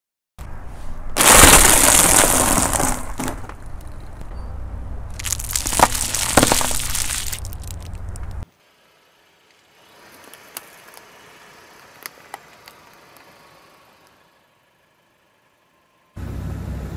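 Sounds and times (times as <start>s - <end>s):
low car rumble: 0.4s - 8.5s, 9.3s - 16.9s
bagel rings crackling and breaking: 1.2s - 4.3s, 5.1s - 8.4s
hard candies crunching under tyre: 1.2s - 4.3s, 5.1s - 8.4s.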